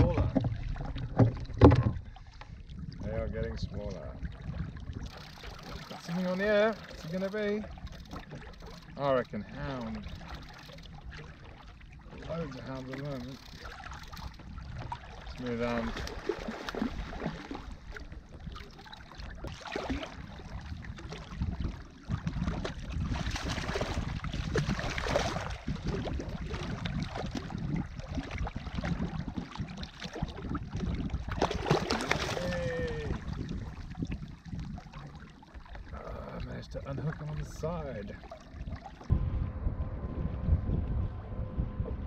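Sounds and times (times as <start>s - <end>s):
water splashing against kayak: 0.0s - 39.3s
fish thrashing at surface: 31.4s - 32.6s.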